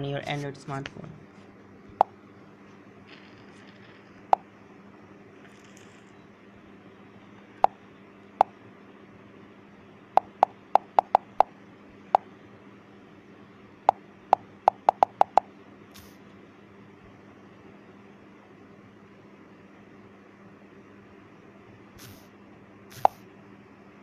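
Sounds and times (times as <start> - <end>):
taps on smartphone touchscreen: 10.2 - 11.5, 14.7 - 15.5.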